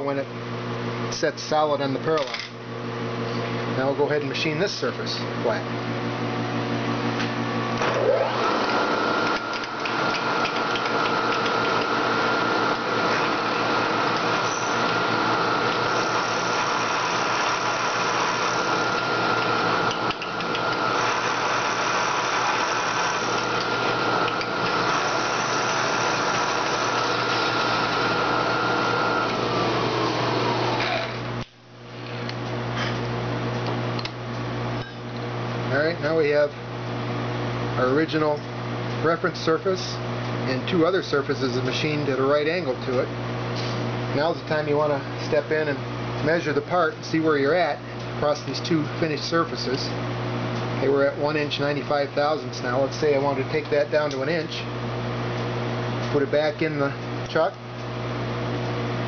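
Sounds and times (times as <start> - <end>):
milling machine hum: 4.8 - 37.8
machine whine: 7.2 - 31.5.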